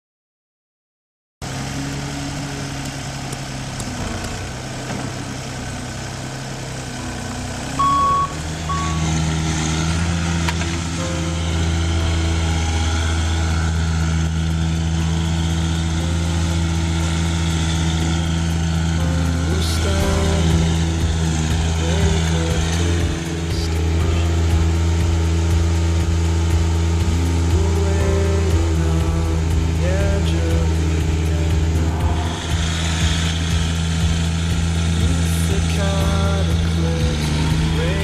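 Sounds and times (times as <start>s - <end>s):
road roller running: 1.4s - 38.0s
wheel loader diesel engine running: 1.4s - 38.0s
backup alarm beeps: 7.8s - 9.2s.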